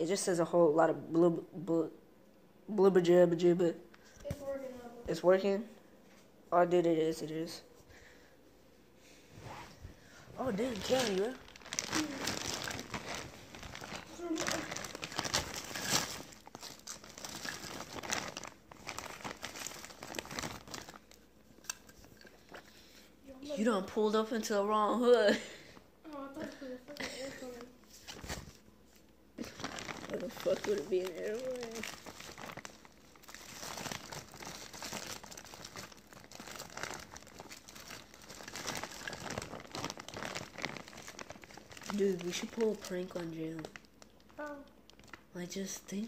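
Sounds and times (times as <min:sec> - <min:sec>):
crinkling and rustling: 0:10.4 - 0:22.7, 0:26.1 - 0:45.2.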